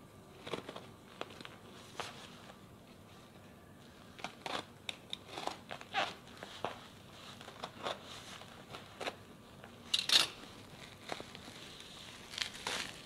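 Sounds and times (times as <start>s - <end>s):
plastic crinkling: 9.9s - 13.0s.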